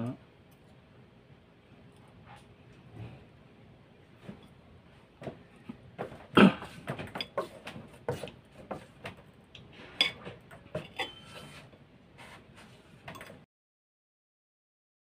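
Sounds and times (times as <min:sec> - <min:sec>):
fork and knife scraping a plate: 0:09.8 - 0:12.4.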